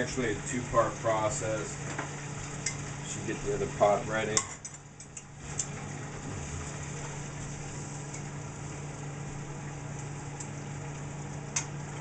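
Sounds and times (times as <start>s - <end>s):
kitchen appliance motor humming: 5.0s - 12.0s.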